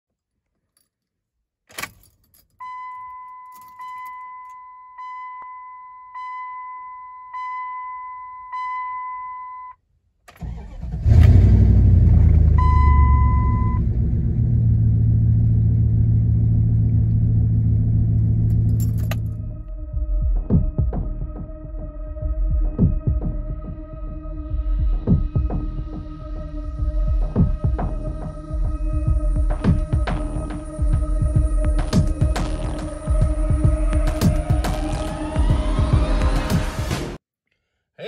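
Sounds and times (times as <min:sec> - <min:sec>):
dashboard warning chime: 0:01.8 - 0:09.8, 0:12.6 - 0:13.8
engine cranking and starting: 0:10.3 - 0:12.6.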